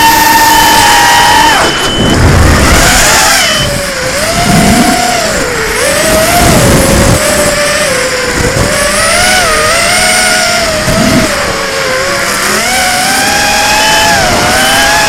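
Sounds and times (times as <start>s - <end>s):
drone motors whining: 0.0s - 15.0s
wind rumble on microphone: 1.6s - 12.2s.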